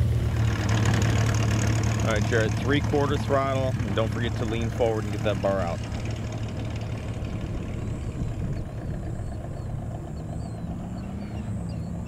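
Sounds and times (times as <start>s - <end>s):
propeller engine drone: 0.0s - 12.0s
small birds chirping: 3.0s - 12.0s.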